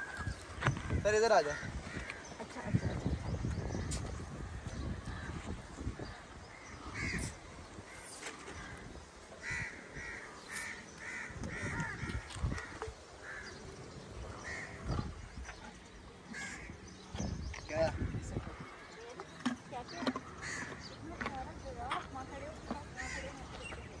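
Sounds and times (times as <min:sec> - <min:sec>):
crows cawing: 0:00.0 - 0:02.9, 0:06.0 - 0:13.6, 0:14.3 - 0:15.0, 0:16.3 - 0:16.8, 0:20.2 - 0:21.0, 0:23.0 - 0:23.7.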